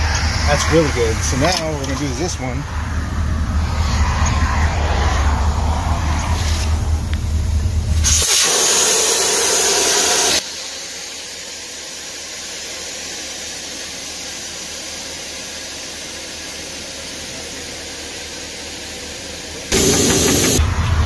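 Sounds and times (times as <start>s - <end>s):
air hissing under pressure: 7.9s - 17.2s, 19.7s - 20.6s.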